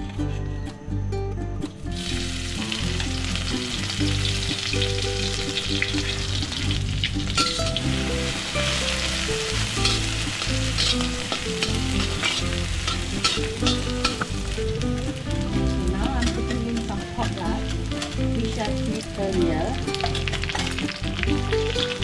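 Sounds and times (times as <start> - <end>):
light background music: 0.0 - 22.0
shrimp sizzling in hot oil: 2.0 - 22.0
metal spatula scraping wok: 7.2 - 14.8, 15.7 - 18.6, 19.9 - 21.0.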